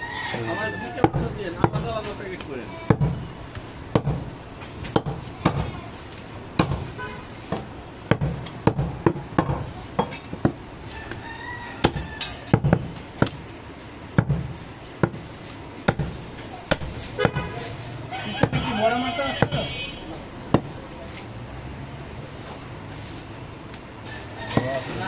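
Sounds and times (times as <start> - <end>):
knife chopping meat and bone: 0.9 - 4.3, 7.6 - 9.7, 11.8 - 13.4, 14.2 - 15.3, 15.9 - 17.5, 18.3 - 18.8, 19.4 - 19.7, 20.5 - 20.8.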